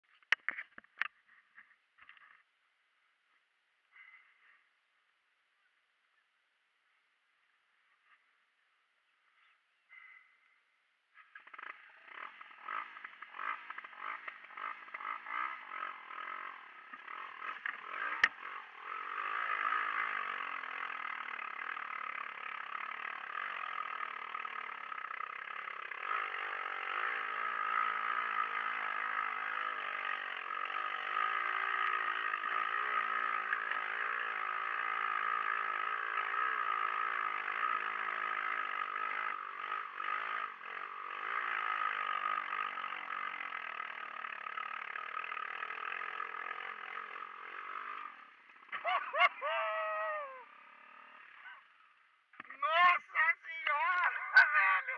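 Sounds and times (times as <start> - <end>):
buggy engine revving: 11.2 - 54.9.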